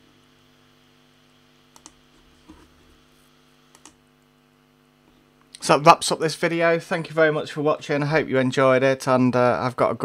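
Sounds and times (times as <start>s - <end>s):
low electrical hum: 0.0s - 10.0s
faint clicks: 1.7s - 2.0s.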